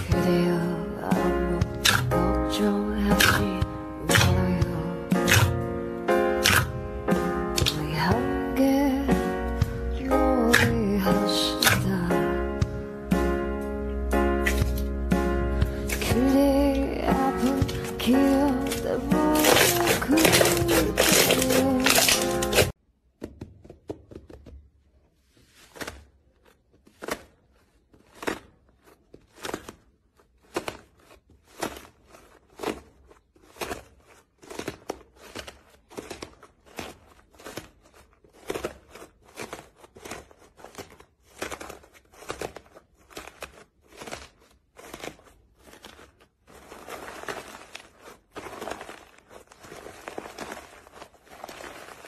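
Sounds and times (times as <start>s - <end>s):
slime crust crackling: 0.0s - 22.8s, 24.9s - 52.0s.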